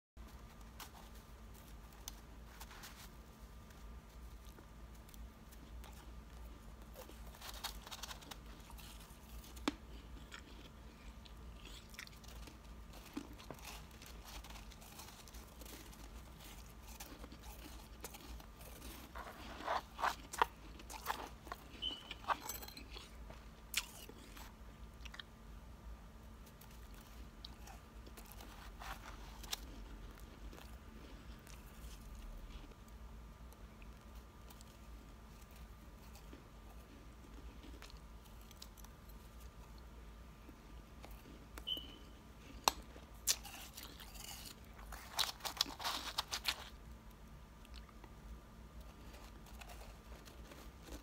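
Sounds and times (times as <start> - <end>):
chewing crunchy ice: 5.5 - 25.3, 42.5 - 46.8.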